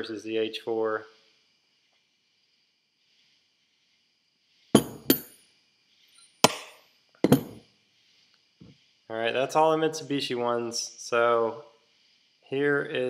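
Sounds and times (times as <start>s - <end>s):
metal parts clunking on surface: 4.8s - 5.4s, 7.2s - 7.6s.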